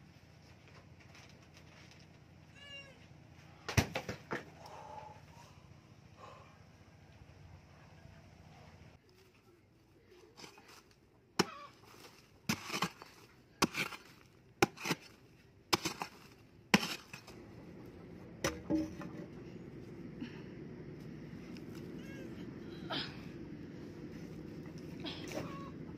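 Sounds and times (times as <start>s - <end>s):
hoe striking hard earth: 11.4s - 17.4s, 18.4s - 19.4s.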